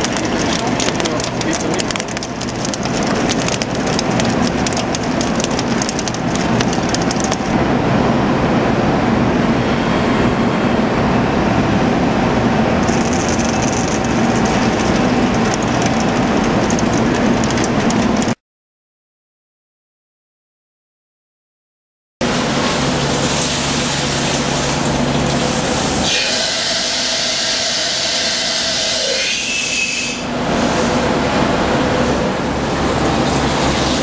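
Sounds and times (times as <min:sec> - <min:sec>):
sharp crackling clicks: 0:00.0 - 0:07.6, 0:12.9 - 0:18.4.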